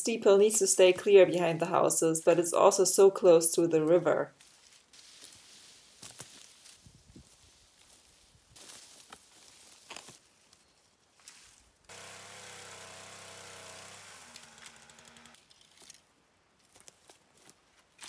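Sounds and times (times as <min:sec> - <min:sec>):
branches rustling and scraping: 0:04.3 - 0:18.0
pole chainsaw running: 0:11.9 - 0:15.4.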